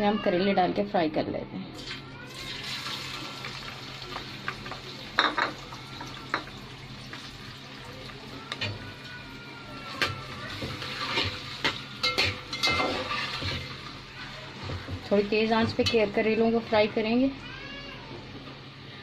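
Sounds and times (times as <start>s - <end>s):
vegetables sizzling in hot oil: 1.8s - 8.6s, 10.4s - 15.3s.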